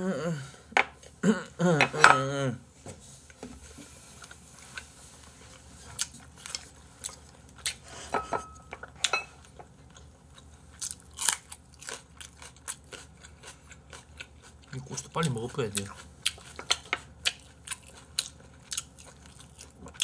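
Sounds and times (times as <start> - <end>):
man chewing and smacking: 4.2 - 7.8, 8.7 - 20.0.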